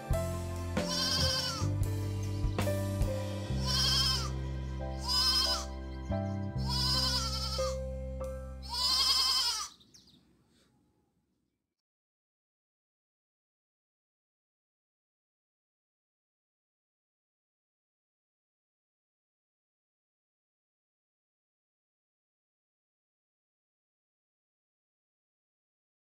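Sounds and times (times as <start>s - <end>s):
background music with bass line: 0.0s - 8.7s
goat bleating: 0.8s - 1.8s, 3.5s - 4.4s, 5.0s - 5.8s, 6.6s - 7.8s, 8.6s - 9.8s.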